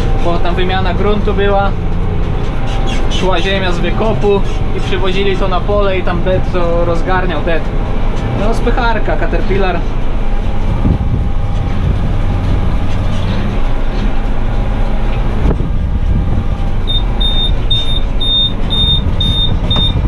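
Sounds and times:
tractor engine running: 0:00.0 - 0:20.0
high electronic beeps: 0:16.9 - 0:20.0.

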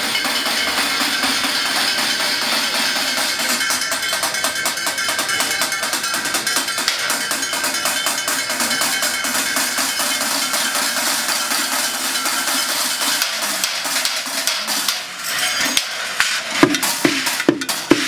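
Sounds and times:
drumsticks clattering on pots and metal: 0:12.6 - 0:18.0.

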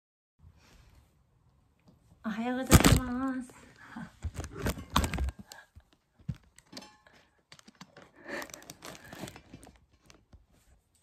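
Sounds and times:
phone handling rustle: 0:04.2 - 0:05.6.

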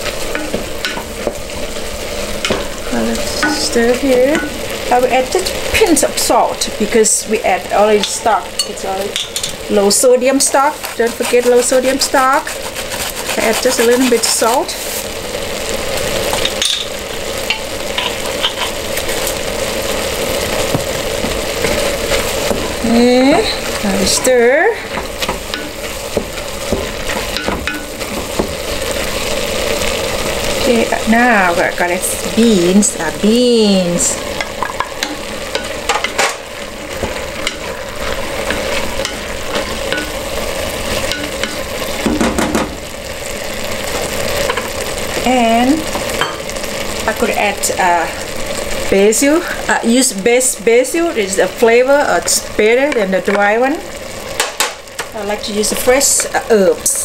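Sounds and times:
meat sizzling in a pot: 0:00.0 - 0:57.0
wooden spoon stirring: 0:08.0 - 0:15.1, 0:20.6 - 0:42.1
spatula scraping and clicking on pot: 0:10.5 - 0:14.6, 0:17.5 - 0:18.8, 0:34.4 - 0:40.2.

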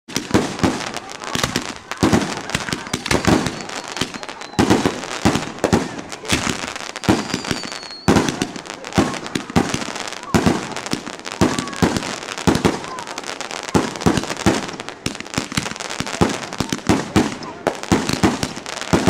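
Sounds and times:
fireworks bangs: 0:00.1 - 0:19.0
fireworks crackling: 0:00.1 - 0:19.0
high firework whistle: 0:00.2 - 0:10.8.

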